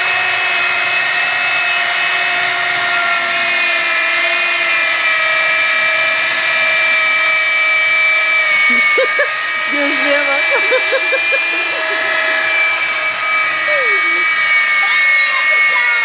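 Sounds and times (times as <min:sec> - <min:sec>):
electric drill boring into wood: 0:00.0 - 0:16.0.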